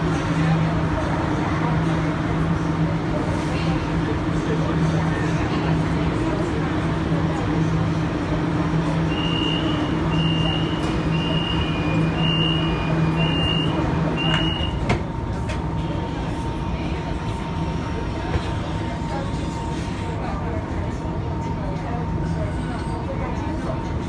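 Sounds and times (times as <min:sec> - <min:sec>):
low train hum: 0:00.0 - 0:24.0
door-closing warning beeps: 0:09.1 - 0:15.0.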